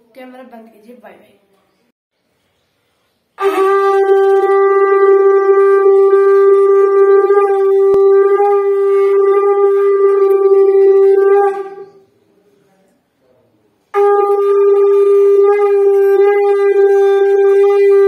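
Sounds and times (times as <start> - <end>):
conch shell blown: 3.4 - 12.0, 13.9 - 18.0.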